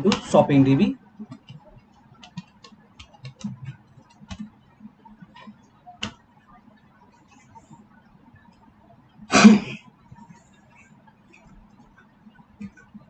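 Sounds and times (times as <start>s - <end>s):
keyboard keys clicking: 2.2s - 4.5s.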